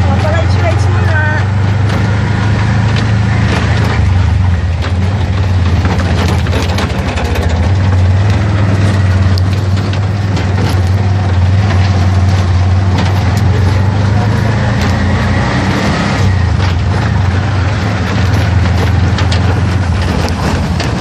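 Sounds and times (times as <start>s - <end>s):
clicks and rattles: 2.8s - 15.2s, 16.2s - 21.0s
small engine running: 5.7s - 21.0s.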